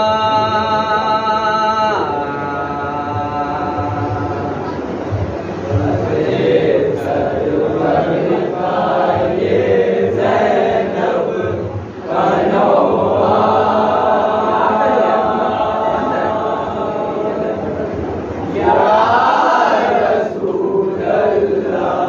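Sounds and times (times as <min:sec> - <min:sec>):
men chanting a lament: 0:05.6 - 0:22.0.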